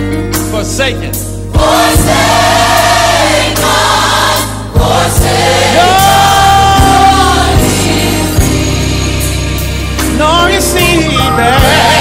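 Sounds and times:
bass line: 1.2s - 12.0s
choir singing: 1.6s - 10.0s, 11.4s - 12.0s.

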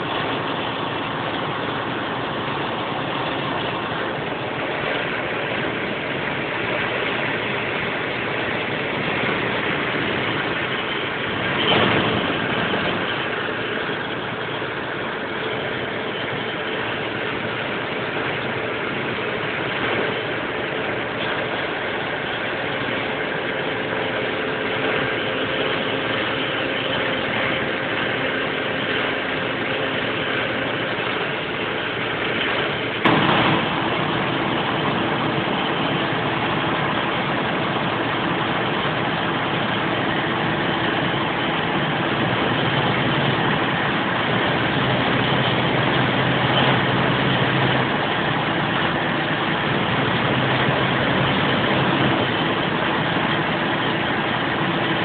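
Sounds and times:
diesel engine running: 0.0s - 55.0s
sharp knock: 33.0s - 33.8s.

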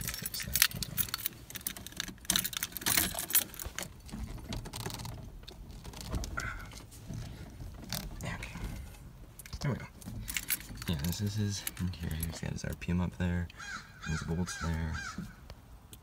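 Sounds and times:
keys jingling: 0.0s - 4.1s, 10.2s - 12.5s.

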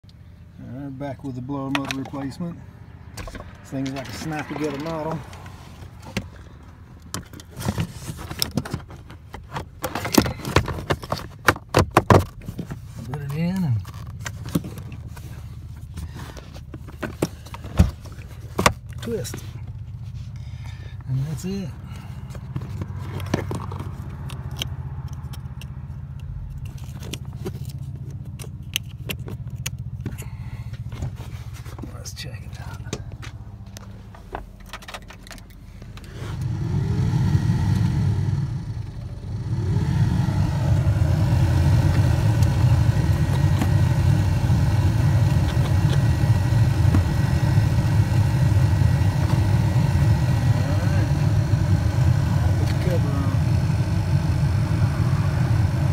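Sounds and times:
vehicle engine idling hum: 0.0s - 55.9s
sharp clicks and light scrapes: 22.3s - 30.2s.

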